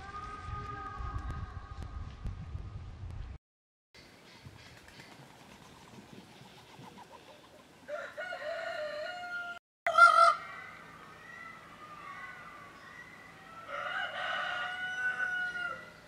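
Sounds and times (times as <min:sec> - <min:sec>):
peafowl calling: 0:09.2 - 0:16.0.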